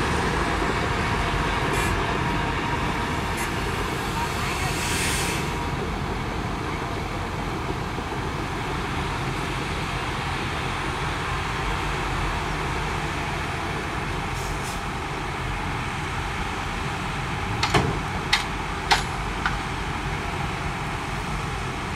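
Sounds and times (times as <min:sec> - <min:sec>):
sharp knocks: 0:17.6 - 0:19.6.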